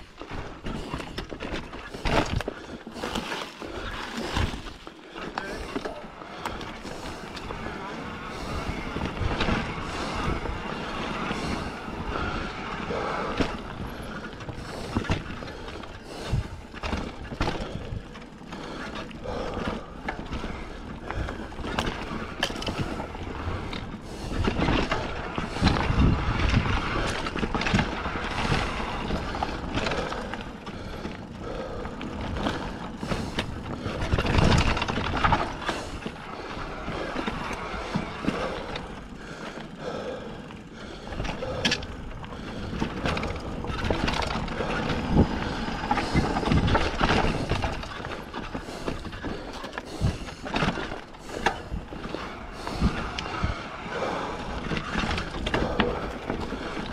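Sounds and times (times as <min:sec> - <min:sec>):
bike tyres crunching on dirt: 0:00.0 - 0:56.9
bike frame rattling and knocking: 0:13.3 - 0:39.8, 0:41.0 - 0:53.6.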